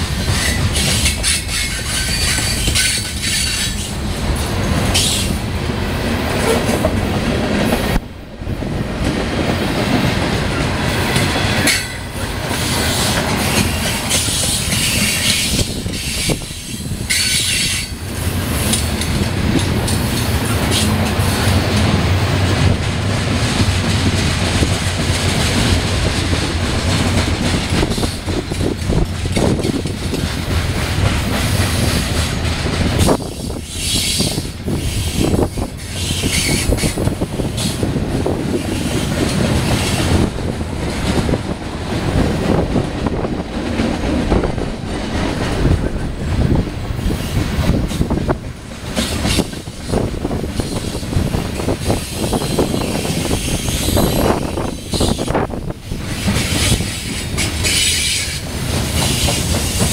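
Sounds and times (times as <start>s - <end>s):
freight train wheels clattering: 0.0s - 59.9s
high wheel squeal: 0.3s - 4.0s, 33.0s - 37.0s, 52.0s - 55.4s.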